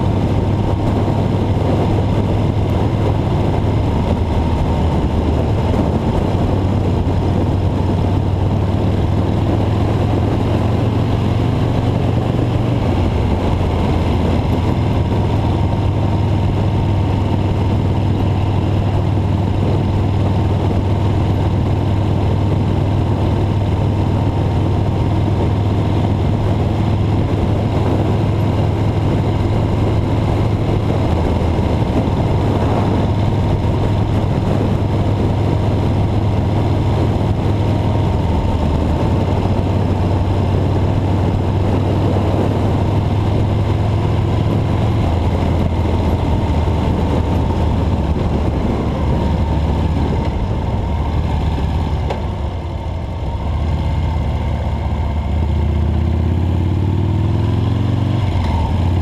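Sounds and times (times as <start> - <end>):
road noise: 0.0 - 59.0
vehicle engine drone: 0.0 - 59.0.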